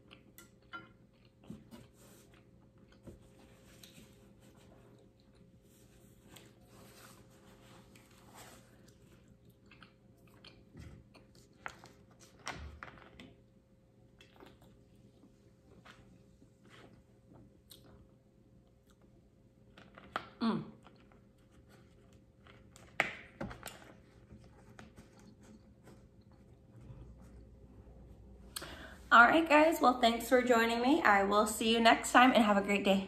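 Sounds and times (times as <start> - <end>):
chewing and mouth sounds: 0.0 - 4.0, 8.8 - 12.4, 14.2 - 22.8.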